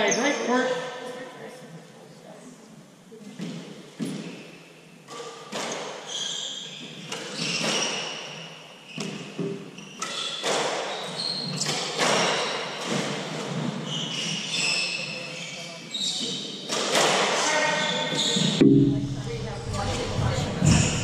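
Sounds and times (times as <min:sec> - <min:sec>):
court shoes squeaking: 0:05.6 - 0:08.1, 0:08.9 - 0:12.5.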